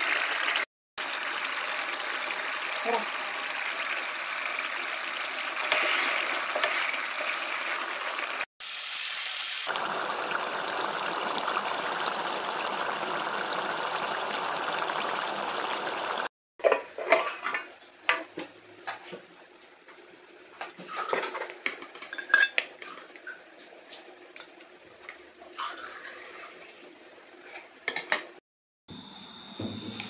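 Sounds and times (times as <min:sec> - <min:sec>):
curry sizzling and bubbling: 0:00.0 - 0:18.0, 0:20.8 - 0:28.4.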